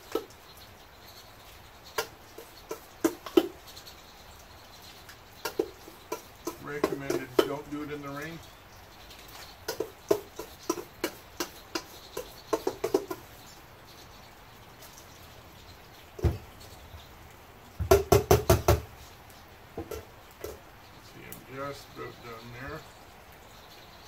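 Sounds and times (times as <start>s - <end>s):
knocks: 2.7s - 3.6s, 5.4s - 7.6s, 9.7s - 13.2s, 16.2s - 16.5s, 17.8s - 18.9s, 19.8s - 20.6s
thump: 16.2s - 16.4s.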